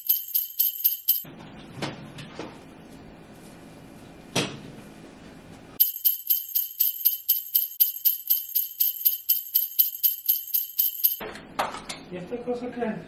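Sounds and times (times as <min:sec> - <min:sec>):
sleigh bells shaken: 0:00.0 - 0:01.3, 0:05.8 - 0:11.2.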